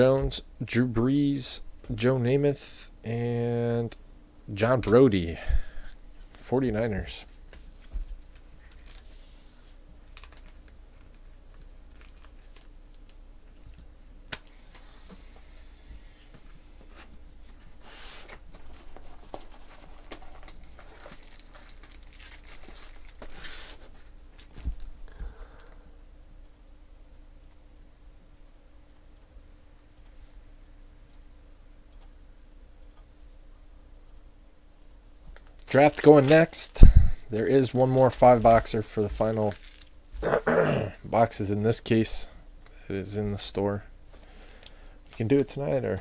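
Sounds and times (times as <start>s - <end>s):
trading cards rustling: 7.8s - 9.1s, 10.0s - 11.2s, 18.2s - 24.9s, 35.4s - 36.8s, 37.4s - 39.9s.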